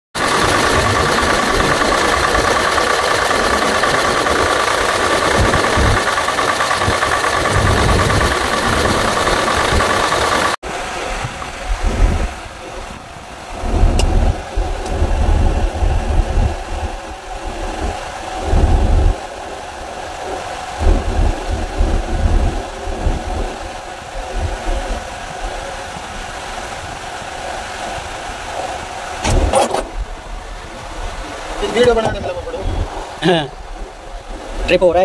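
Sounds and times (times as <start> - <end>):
truck engine idling: 0.2 - 21.5
low rumbles: 0.2 - 35.0.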